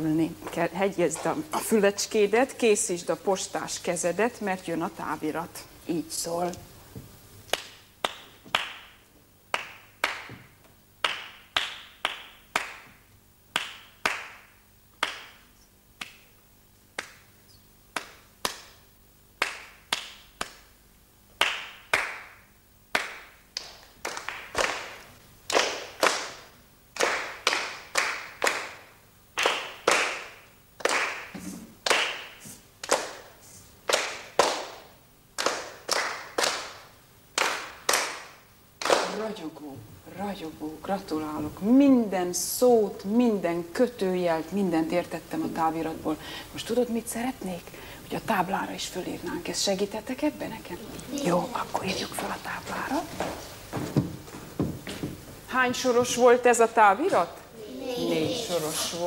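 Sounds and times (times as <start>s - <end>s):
children clapping in unison: 7.5s - 10.4s, 11.0s - 16.2s, 18.0s - 18.8s, 19.4s - 20.7s, 21.4s - 39.2s
person clapping a rhythm: 7.5s - 16.3s, 16.9s - 17.3s, 17.9s - 18.8s, 19.4s - 20.8s, 21.4s - 39.2s.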